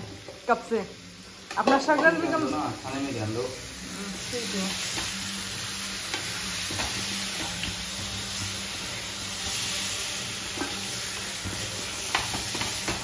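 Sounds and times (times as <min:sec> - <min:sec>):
curry sizzling in a pan: 0:00.0 - 0:13.0.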